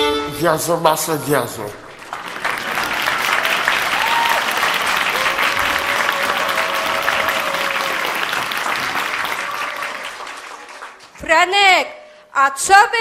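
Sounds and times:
audience applauding: 1.4 - 11.2.

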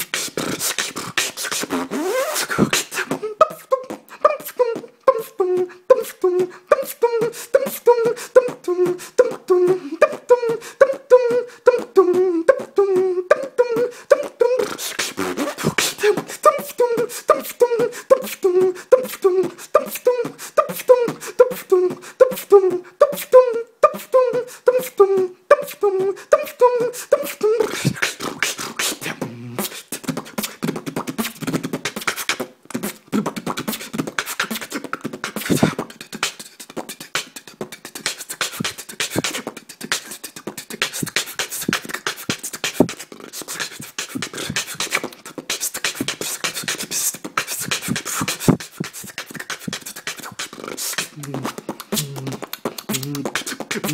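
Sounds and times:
beatboxing drum beat: 0.0 - 53.9.

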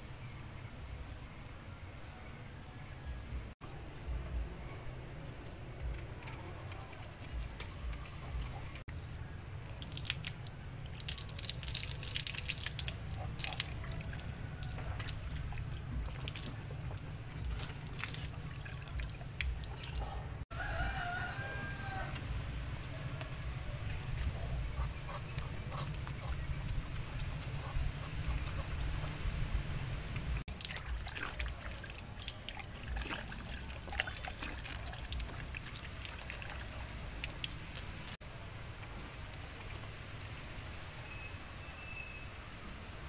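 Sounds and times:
water splashing and dripping: 7.2 - 20.4, 21.8 - 41.0
rooster crowing: 20.5 - 22.3.

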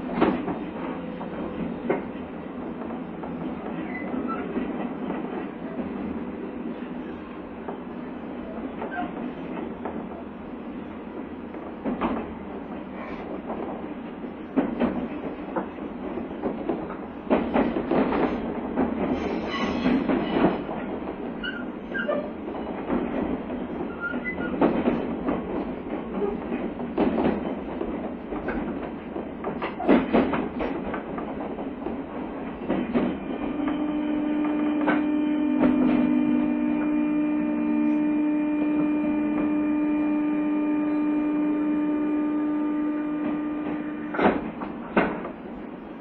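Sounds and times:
train wheels knocking over rail joints: 11.5 - 40.3, 42.1 - 45.6
traction motor whine: 33.2 - 44.6.

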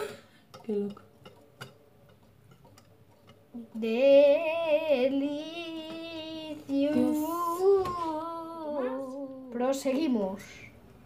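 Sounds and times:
whisk tapping glass bowl: 0.5 - 7.3.

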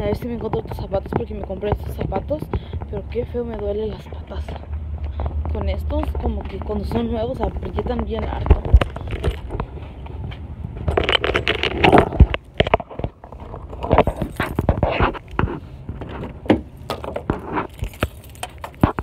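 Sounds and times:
low wind rumble: 0.0 - 19.0
phone handling rustles: 8.4 - 19.0.

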